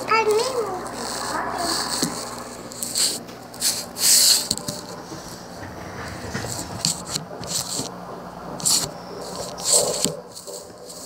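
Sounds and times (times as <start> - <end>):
short hissing bursts: 0.0 - 5.4
faint steady hum: 0.0 - 11.0.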